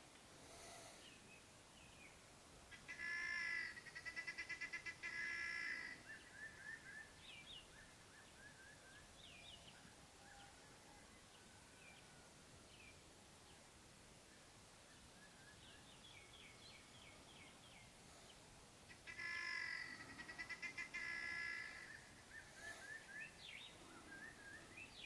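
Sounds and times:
outdoor hiss: 0:00.0 - 0:02.9, 0:11.9 - 0:19.1
faint bird chirps: 0:00.9 - 0:12.2, 0:14.3 - 0:25.0.

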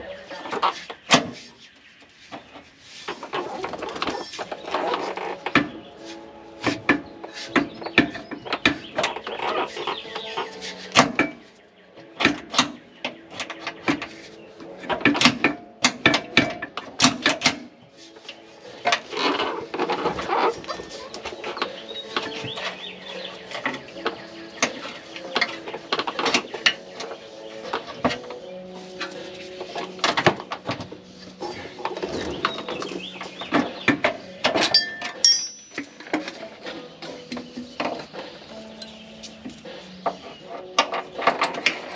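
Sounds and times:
metallic clinks of hand tools: 0:33.5 - 0:36.3.

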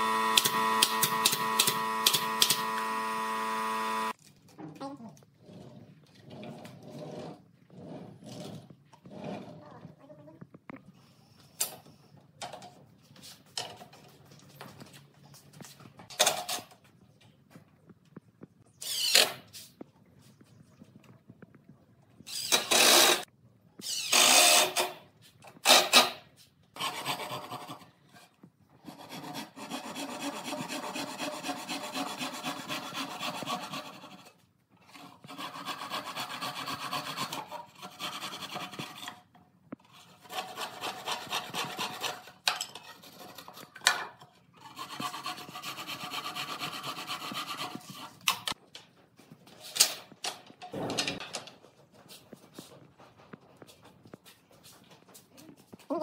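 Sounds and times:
cordless drill driving screws: 0:00.0 - 0:04.2, 0:18.8 - 0:19.4, 0:22.3 - 0:23.2
hand saw cutting wood: 0:22.3 - 0:23.3, 0:25.6 - 0:26.2, 0:26.8 - 0:28.0, 0:28.8 - 0:39.3, 0:39.9 - 0:44.0, 0:44.6 - 0:48.6.

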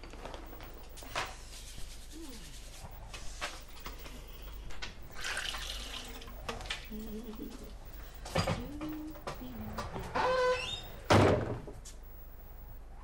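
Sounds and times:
kitchen tap running: 0:05.1 - 0:06.4.

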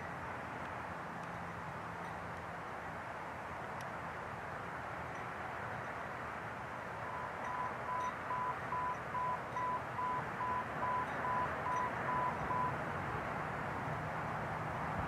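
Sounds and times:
distant traffic hiss: 0:00.0 - 0:15.0
short electronic beeps: 0:07.0 - 0:12.8.

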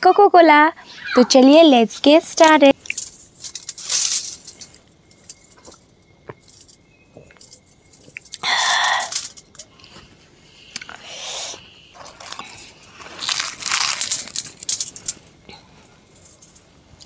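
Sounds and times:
person exhaling: 0:08.4 - 0:09.2, 0:10.8 - 0:11.6.

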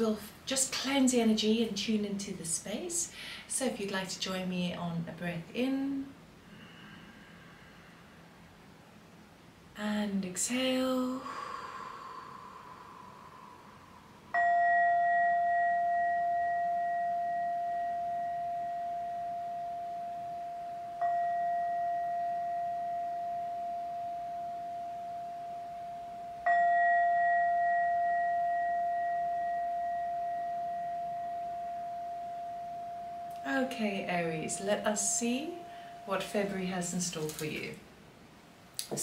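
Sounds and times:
singing bowl ringing: 0:11.3 - 0:36.5.

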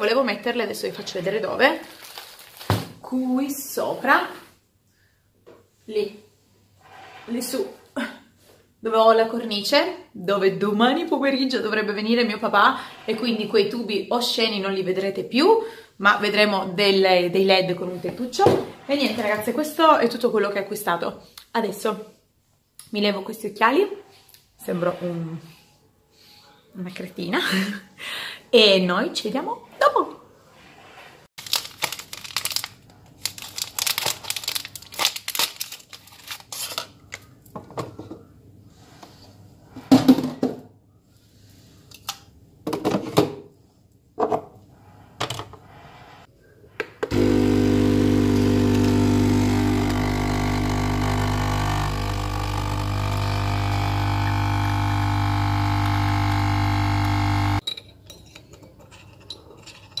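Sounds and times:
coffee machine pump humming: 0:47.1 - 0:57.6.

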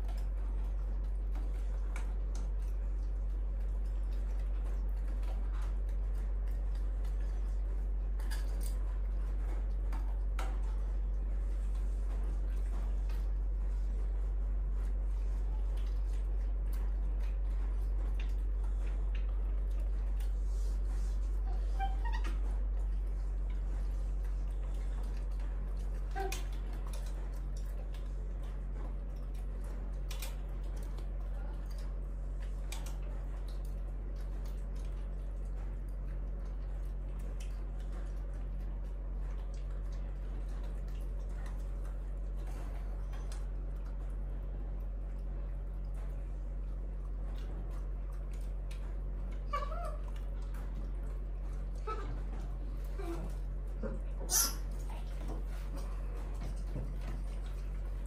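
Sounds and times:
faint clicks and taps: 0:00.0 - 0:21.4, 0:22.0 - 0:58.0
steady low hum: 0:00.0 - 0:58.0
young monkey squeaking: 0:54.2 - 0:54.7.

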